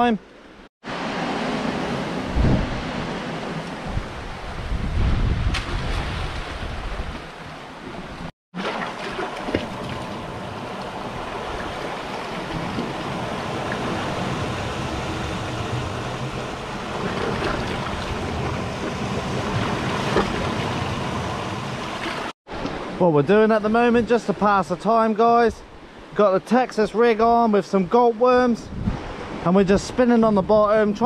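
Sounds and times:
sea waves washing over rocks: 0.9 - 22.9.

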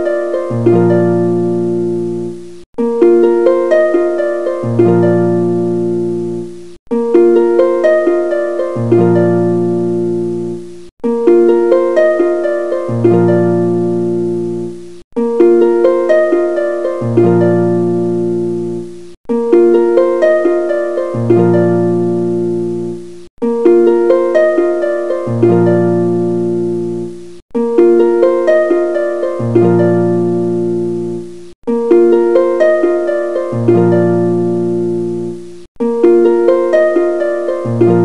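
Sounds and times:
instrumental music loop with bass: 0.0 - 38.0.

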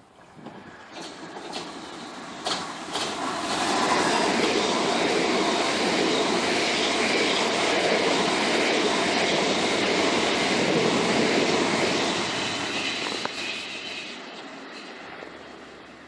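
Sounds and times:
train wheels on rails: 0.3 - 16.0.

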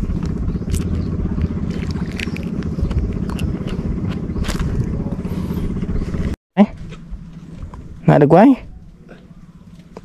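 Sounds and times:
small engine running: 0.0 - 6.4.

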